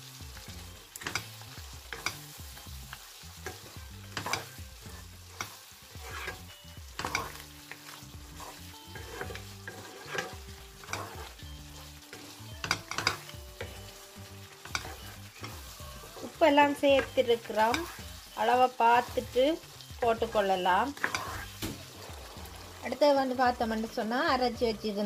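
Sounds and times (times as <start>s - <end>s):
food sizzling in a pan: 0.0s - 25.0s
wooden spatula scraping a pan: 3.3s - 22.9s.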